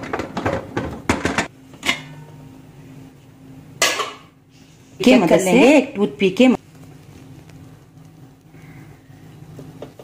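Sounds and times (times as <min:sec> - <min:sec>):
metal pot lid clanking: 0:00.0 - 0:02.4, 0:03.8 - 0:04.3.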